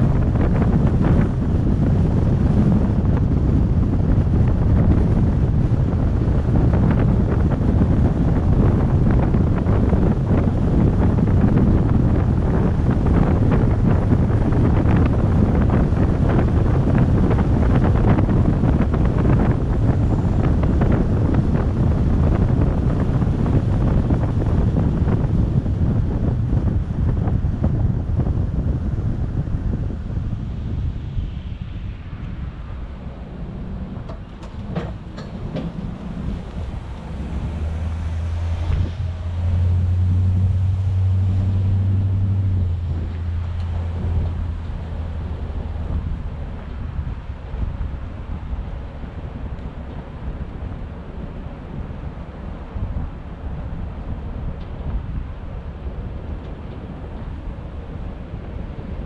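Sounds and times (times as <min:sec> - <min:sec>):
road and engine rumble: 0:00.0 - 0:59.0
wind buffeting microphone: 0:00.0 - 0:59.0
knock: 0:34.1 - 0:35.8.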